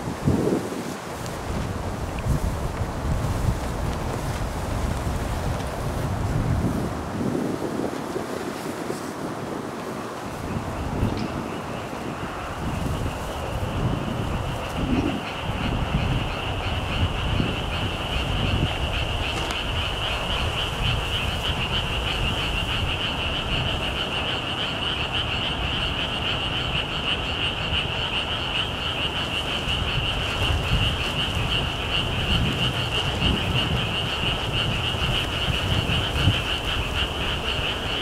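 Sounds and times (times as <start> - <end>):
wind buffeting microphone: 0.0 - 38.0
frogs trilling: 9.6 - 38.0.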